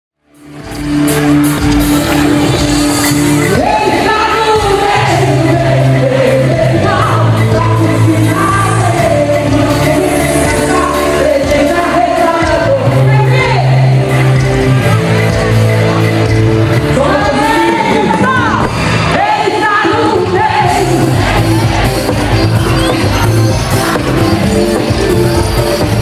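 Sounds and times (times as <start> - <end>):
sustained chords and bass: 0.2 - 26.0
person singing: 3.4 - 14.1.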